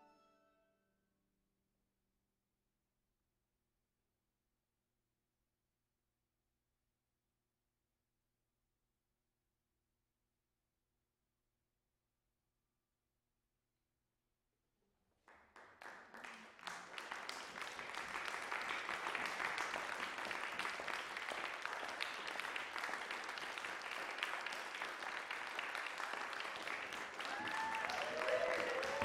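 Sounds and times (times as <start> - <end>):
audience applauding: 15.2 - 29.0
voices cheering: 27.1 - 29.0.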